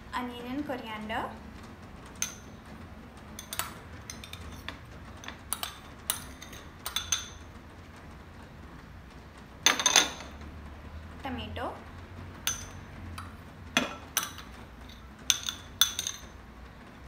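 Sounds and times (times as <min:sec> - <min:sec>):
metal spoon clinking ceramic bowl: 0:03.4 - 0:07.4, 0:12.5 - 0:12.8, 0:13.8 - 0:16.2.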